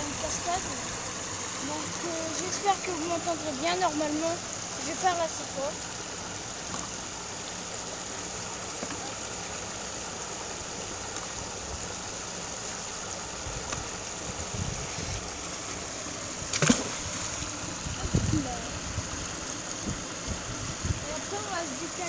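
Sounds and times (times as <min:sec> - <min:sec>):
small waterfall rushing: 0:00.0 - 0:22.0
magnet splashing into water: 0:16.4 - 0:17.4.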